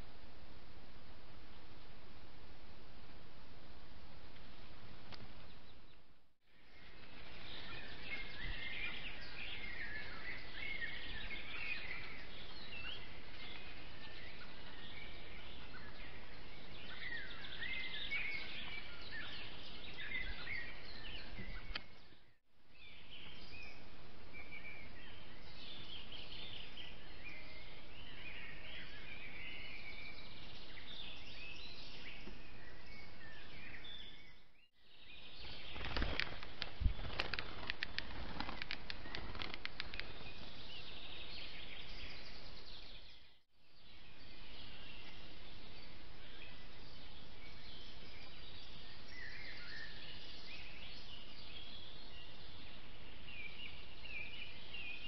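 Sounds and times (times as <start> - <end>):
microphone hiss: 0.0 - 22.0
songbirds chirping: 0.0 - 55.0.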